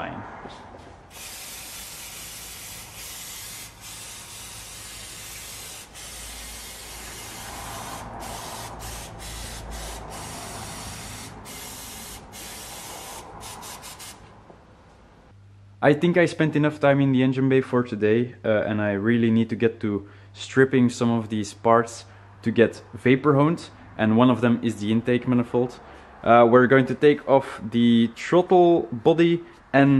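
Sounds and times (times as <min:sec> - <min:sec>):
aerosol spray can hissing: 0:01.1 - 0:14.2.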